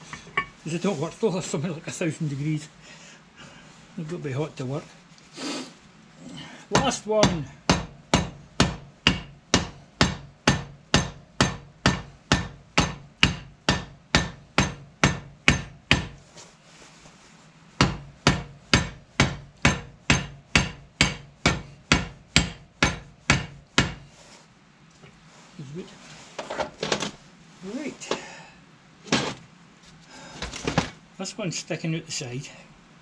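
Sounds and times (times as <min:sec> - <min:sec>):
hammer striking metal: 0:06.8 - 0:16.2, 0:17.8 - 0:24.0.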